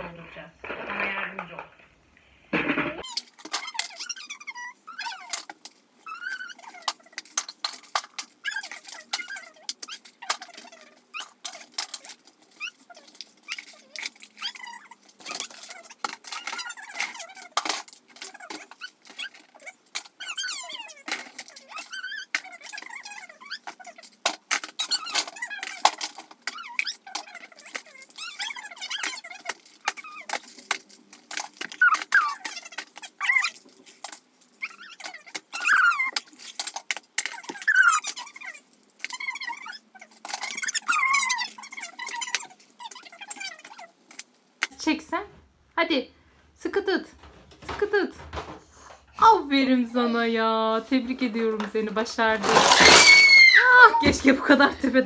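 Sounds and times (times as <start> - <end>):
plastic toys clattering into tub: 0.2 - 1.9, 2.6 - 4.3, 5.0 - 44.7, 47.0 - 48.9, 50.9 - 55.0
child squeaky vocal sounds: 3.0 - 17.6, 18.2 - 24.1, 24.8 - 30.6, 31.5 - 33.7, 34.6 - 44.0, 52.8 - 54.2
short high squeaks: 52.7 - 53.7.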